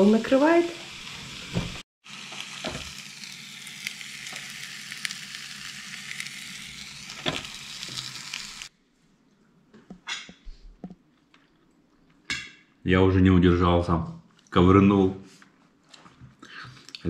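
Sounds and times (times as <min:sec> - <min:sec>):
fish sizzling on a grill: 0:00.0 - 0:08.7.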